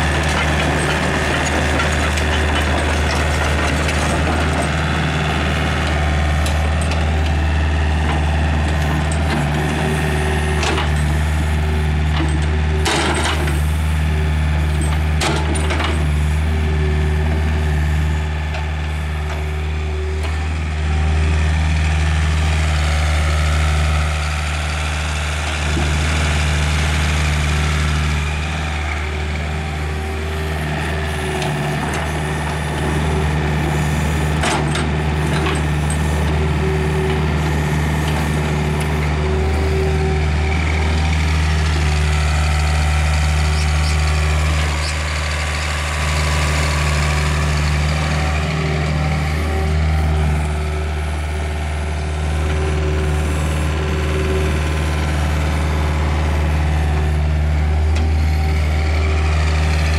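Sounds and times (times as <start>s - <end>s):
excavator diesel engine running: 0.0s - 59.9s.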